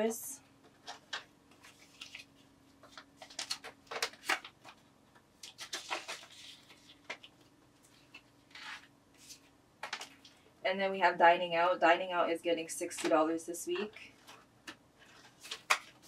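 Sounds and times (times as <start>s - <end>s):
faint steady hum: 0.0s - 16.0s
plastic crinkling and rustling: 0.7s - 10.4s, 14.0s - 16.0s.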